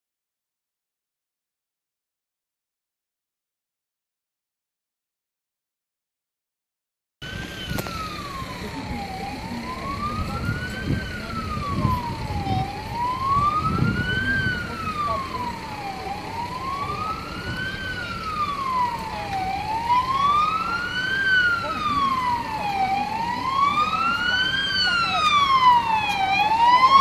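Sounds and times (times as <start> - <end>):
siren wailing: 7.2 - 27.0.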